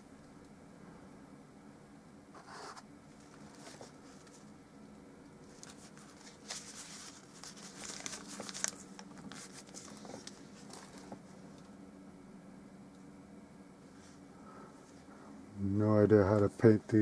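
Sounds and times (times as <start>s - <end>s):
crinkling and rustling: 2.4s - 4.5s, 5.4s - 11.7s.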